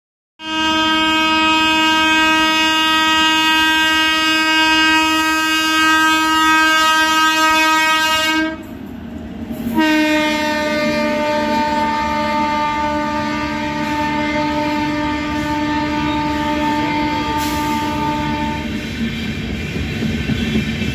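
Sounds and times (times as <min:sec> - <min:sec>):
locomotive horn blast: 0:00.4 - 0:08.7, 0:09.7 - 0:18.8
passing trains: 0:00.4 - 0:20.9.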